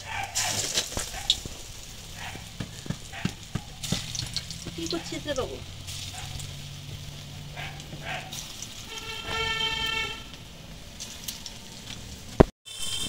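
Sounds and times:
fritters deep-frying in oil: 0:00.0 - 0:13.0
horn toot: 0:07.6 - 0:10.5.

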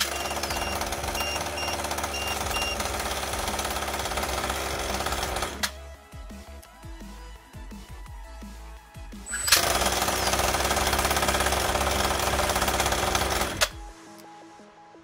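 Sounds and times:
electronic beeper beeping: 0:00.0 - 0:03.0
small engine buzzing: 0:00.0 - 0:05.7, 0:09.3 - 0:13.7
faint background music: 0:02.3 - 0:15.0.

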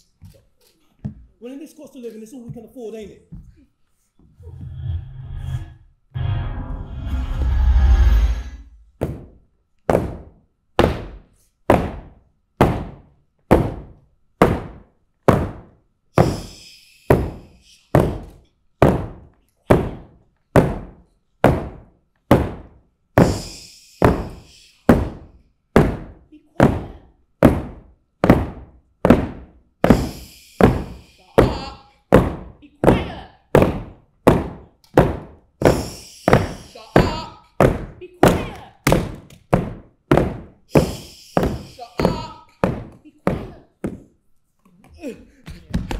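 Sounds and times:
short hiss: 0:16.2 - 0:17.9, 0:23.2 - 0:24.8, 0:29.9 - 0:31.4, 0:35.6 - 0:37.0, 0:40.7 - 0:41.9.

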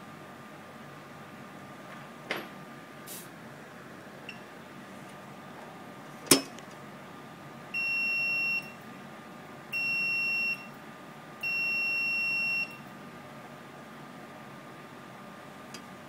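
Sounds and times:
multimeter continuity beeps: 0:07.8 - 0:08.8, 0:09.7 - 0:10.7, 0:11.4 - 0:12.8.

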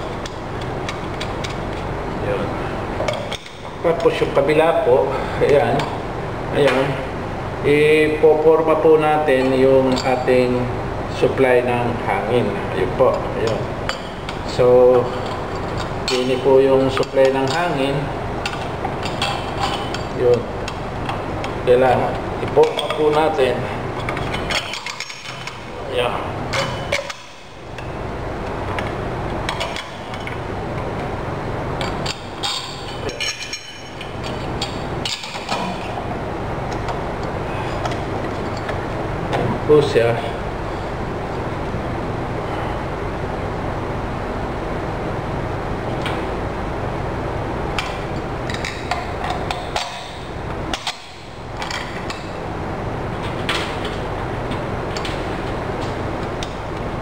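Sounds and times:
steady background hum: 0:00.0 - 0:57.0
metal tools clicking and tapping: 0:13.1 - 0:17.8, 0:18.4 - 0:21.6, 0:22.4 - 0:23.4, 0:24.0 - 0:25.6, 0:26.5 - 0:27.9, 0:29.5 - 0:30.4, 0:31.8 - 0:35.8, 0:47.8 - 0:52.3.

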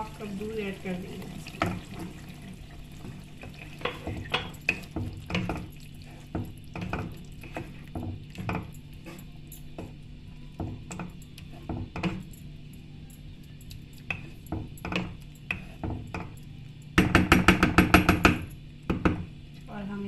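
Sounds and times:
wooden spatula scraping a pot: 0:00.0 - 0:09.3, 0:15.5 - 0:16.0
spatula knocking against pot: 0:17.0 - 0:19.3.

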